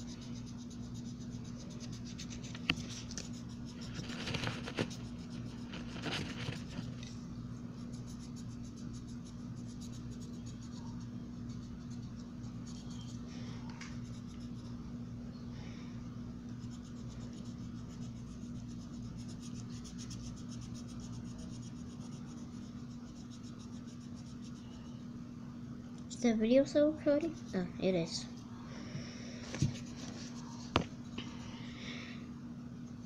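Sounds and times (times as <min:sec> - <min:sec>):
colouring tool scratching paper: 0:00.0 - 0:07.0, 0:16.6 - 0:24.8.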